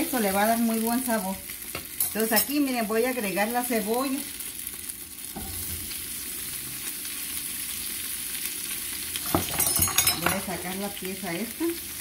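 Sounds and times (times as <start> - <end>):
oil sizzling in a frying pan: 0.0 - 12.0
onion landing in a pan: 9.2 - 10.6.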